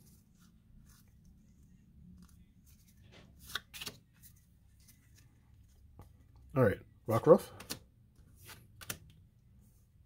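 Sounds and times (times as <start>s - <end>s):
cards sliding and flicking: 2.2s - 5.3s, 7.4s - 9.2s.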